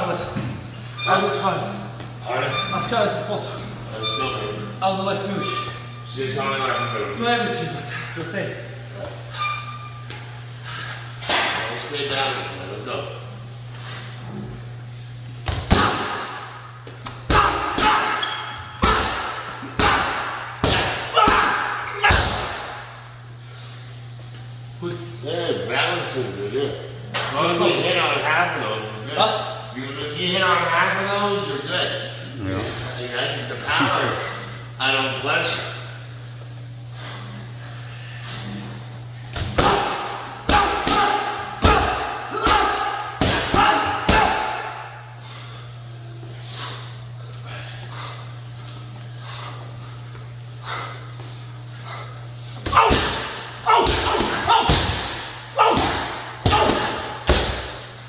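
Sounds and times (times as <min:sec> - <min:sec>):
low steady hum: 0:00.0 - 0:58.0
boxing gloves smacking pads: 0:15.5 - 0:16.4, 0:18.8 - 0:22.7, 0:39.4 - 0:44.6, 0:52.7 - 0:57.8.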